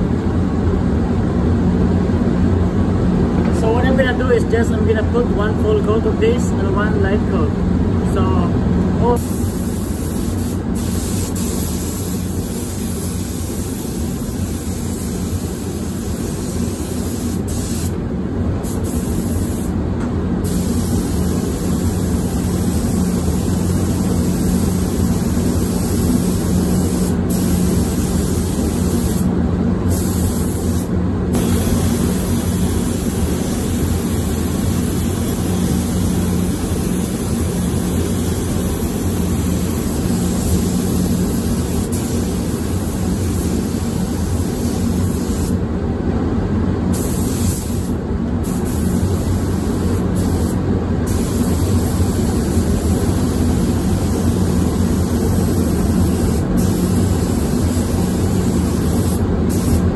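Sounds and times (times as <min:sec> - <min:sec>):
spray gun hissing: 0:09.2 - 0:18.0, 0:18.6 - 0:19.8, 0:20.4 - 0:29.3, 0:29.9 - 0:45.6, 0:46.9 - 0:59.9.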